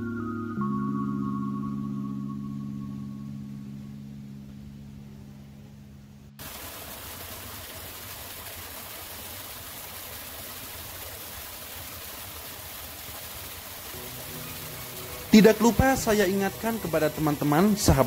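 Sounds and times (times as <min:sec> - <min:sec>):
low musical tones: 0:00.0 - 0:06.4, 0:13.9 - 0:18.0
small waterfall splashing into pool: 0:06.4 - 0:18.0.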